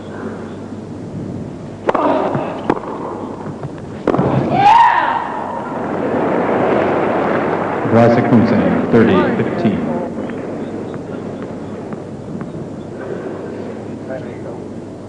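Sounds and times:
tennis ball struck by rackets: 0:01.8 - 0:04.6.

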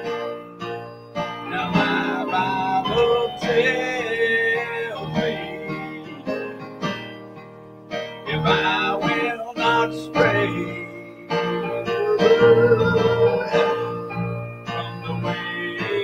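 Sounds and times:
instrumental accompaniment: 0:00.0 - 0:16.0
man singing: 0:01.5 - 0:06.5, 0:08.3 - 0:16.0.

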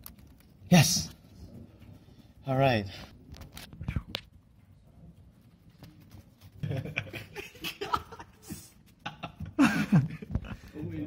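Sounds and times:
soft laughter: 0:06.6 - 0:10.8.

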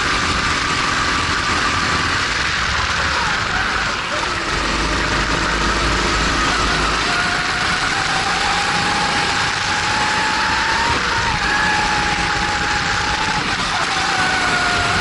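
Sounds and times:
kart engine running hard: 0:00.0 - 0:15.0.

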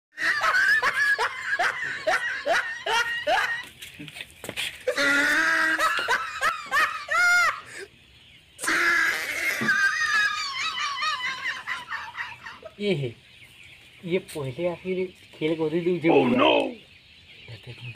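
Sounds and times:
people laughing: 0:00.2 - 0:04.1, 0:04.9 - 0:07.9, 0:08.6 - 0:13.0.

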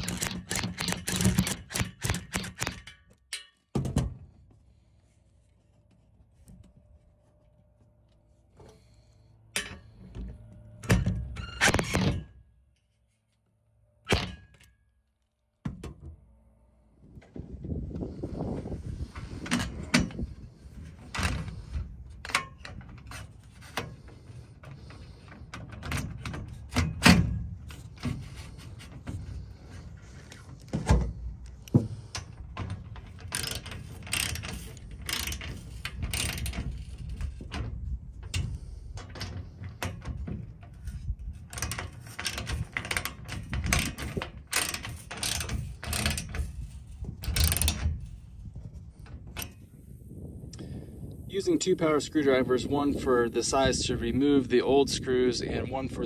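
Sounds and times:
metal clicks and knocks: 0:00.0 - 0:04.2
ratchet wrench clicking: 0:33.3 - 0:36.9, 0:43.7 - 0:47.8.

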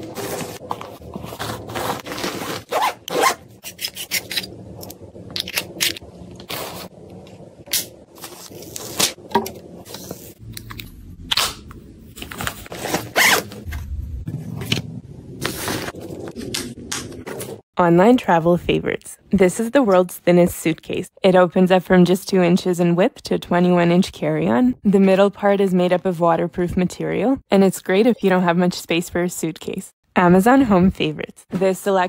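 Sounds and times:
zipper strokes: 0:01.3 - 0:04.2, 0:12.8 - 0:13.6.

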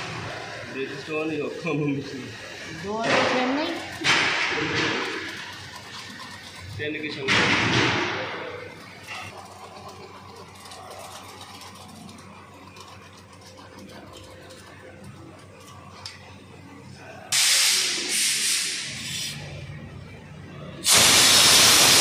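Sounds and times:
air blow gun hissing: 0:17.3 - 0:19.4, 0:20.8 - 0:22.0.

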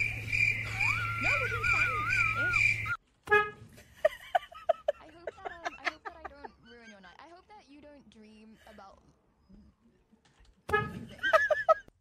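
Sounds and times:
pulsing chirp: 0:00.0 - 0:03.0
wavering high whine: 0:00.0 - 0:03.0
car horn toot: 0:03.2 - 0:03.8, 0:10.7 - 0:11.1
person's voice: 0:04.8 - 0:09.1.

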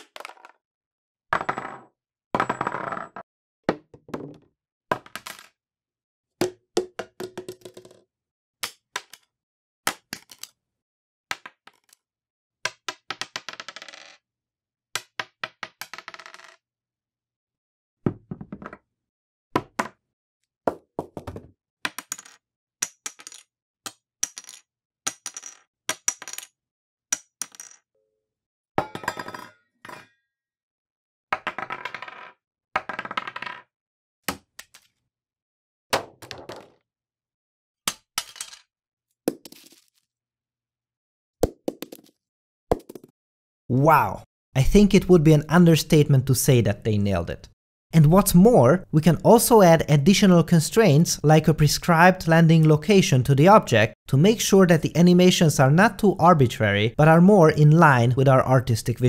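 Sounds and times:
small objects hitting a desk: 0:00.0 - 0:00.6, 0:01.4 - 0:05.6, 0:06.9 - 0:08.0, 0:09.9 - 0:10.6, 0:11.3 - 0:12.0, 0:12.7 - 0:14.2, 0:15.0 - 0:16.6, 0:18.1 - 0:18.9, 0:20.7 - 0:26.6, 0:27.2 - 0:27.8, 0:31.4 - 0:33.7, 0:34.3 - 0:35.0, 0:36.0 - 0:36.8, 0:37.9 - 0:38.7, 0:39.3 - 0:40.1, 0:41.7 - 0:43.1
objects bouncing and clattering: 0:21.0 - 0:22.4, 0:36.0 - 0:36.8.

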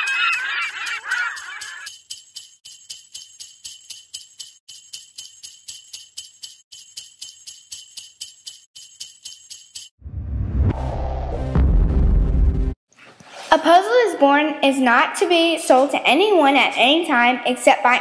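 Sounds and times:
jingle bells shaken: 0:00.0 - 0:10.0.

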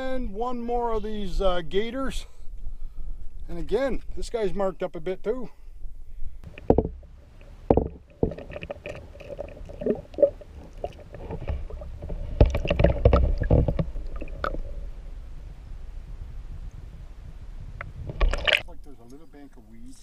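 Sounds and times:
muffled underwater sloshing: 0:06.4 - 0:15.4
knocks: 0:06.6 - 0:07.1, 0:07.7 - 0:08.4.

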